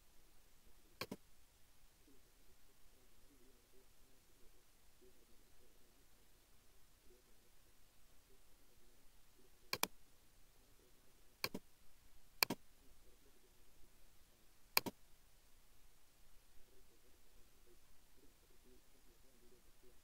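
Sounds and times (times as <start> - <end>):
faint hiss: 0.0 - 20.0
computer mouse clicks: 1.0 - 1.2, 9.7 - 10.0, 11.4 - 11.6, 12.4 - 12.6, 14.8 - 15.0.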